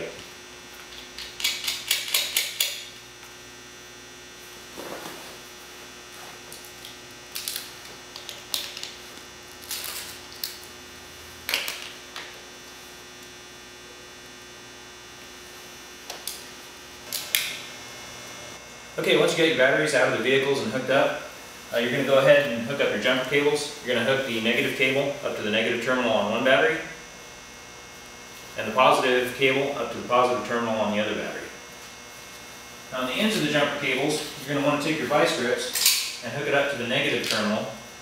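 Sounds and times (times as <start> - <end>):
steady electrical hum: 0.0 - 38.0.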